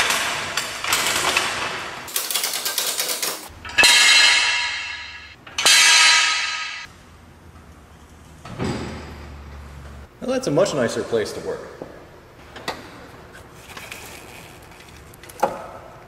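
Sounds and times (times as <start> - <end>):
loud metal clangs ringing: 3.6 - 6.9.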